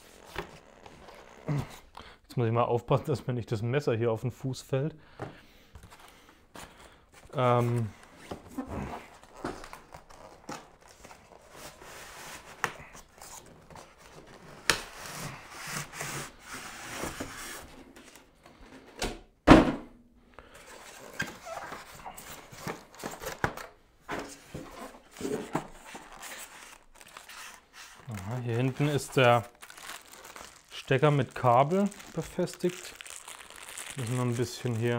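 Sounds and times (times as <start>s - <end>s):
loud thump: 19.5s - 19.9s
packaging rubbing and scraping: 24.7s - 34.9s.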